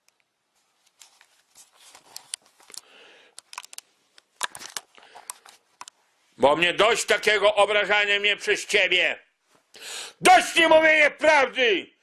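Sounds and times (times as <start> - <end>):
handling rustling and crinkling: 0.0 - 6.0
sharp clicks and taps: 2.2 - 6.0.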